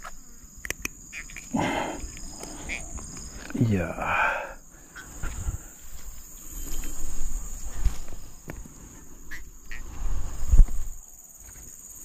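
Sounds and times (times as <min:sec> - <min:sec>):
high insect drone: 0:00.0 - 0:12.0
rustling in grass: 0:05.0 - 0:11.1
dull low thumps: 0:09.9 - 0:11.0.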